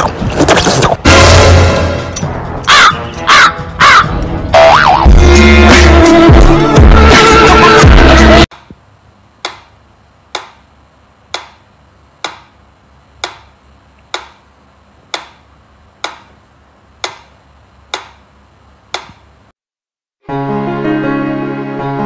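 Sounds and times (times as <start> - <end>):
music: 1.0 - 8.5, 20.2 - 22.0.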